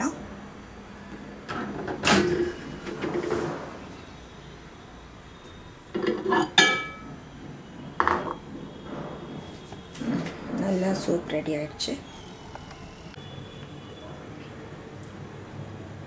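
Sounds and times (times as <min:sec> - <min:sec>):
bowl clattering on glass turntable: 0:06.0 - 0:07.1.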